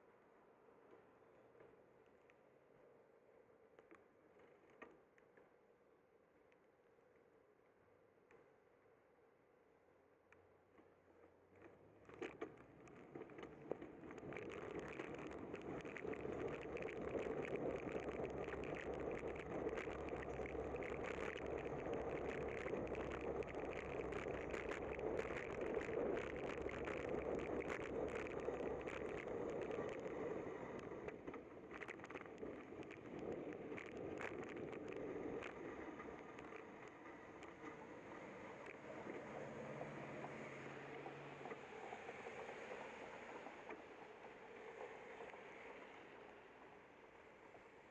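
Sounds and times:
crackling ticks: 10.3s - 46.8s
bicycle tyres on wet road: 11.6s - 47.9s.

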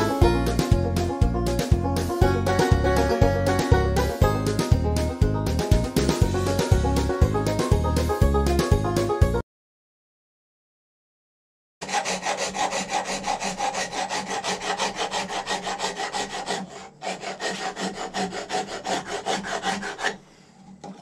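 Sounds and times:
hand rasp filing horn: 11.8s - 21.0s.

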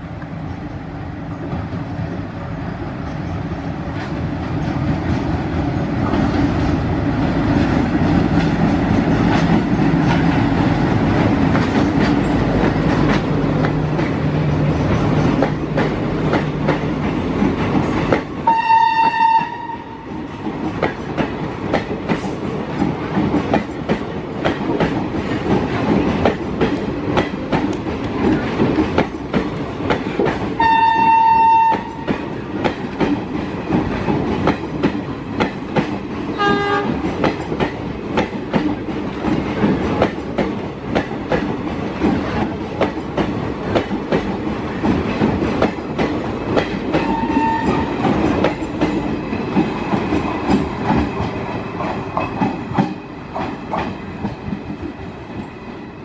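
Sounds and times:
train wheels clattering: 3.0s - 55.6s
train horn: 18.4s - 20.2s, 30.6s - 32.2s, 36.4s - 37.0s, 47.0s - 48.0s.

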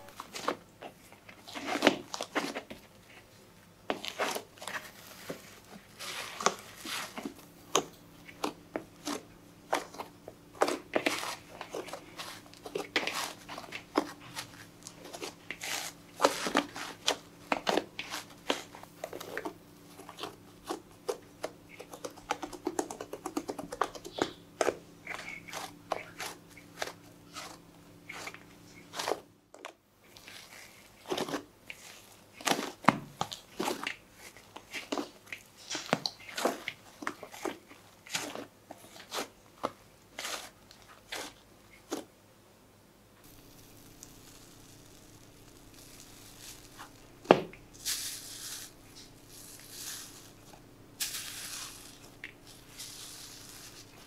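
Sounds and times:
hands squishing soft dough: 0.0s - 42.1s, 43.2s - 54.0s.

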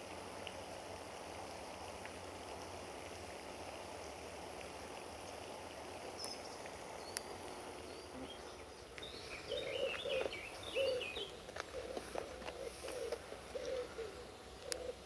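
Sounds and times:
outdoor hiss: 0.0s - 15.0s
birds chirping: 6.1s - 15.0s.

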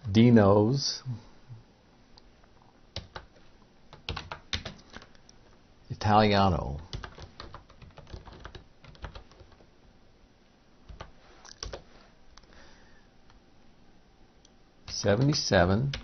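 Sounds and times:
computer keyboard typing: 3.0s - 5.2s, 6.9s - 9.6s, 10.9s - 11.8s, 14.9s - 16.0s.

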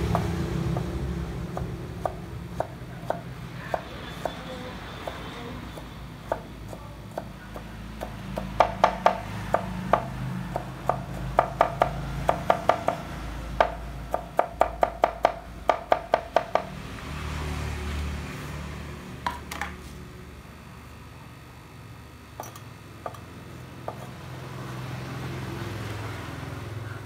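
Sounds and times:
knife chopping on wooden board: 6.3s - 13.0s, 13.6s - 16.7s.

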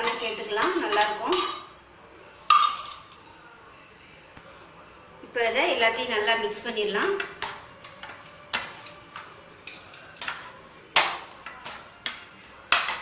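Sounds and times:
spoon clinking against a bowl: 0.0s - 1.8s, 2.5s - 3.2s, 7.4s - 13.0s.

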